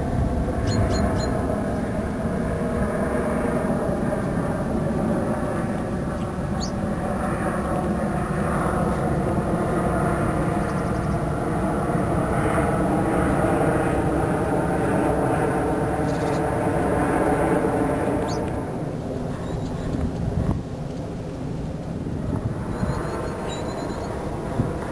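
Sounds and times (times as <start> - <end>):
low mechanical rumble: 0.0 - 12.8
bird sweeping calls: 0.6 - 1.4, 6.6 - 6.8.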